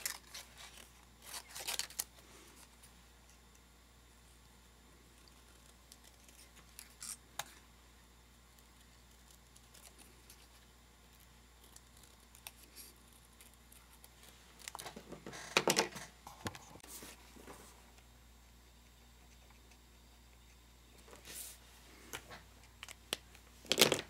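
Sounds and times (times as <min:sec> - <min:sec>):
scissors snipping paper: 0:11.1 - 0:14.8.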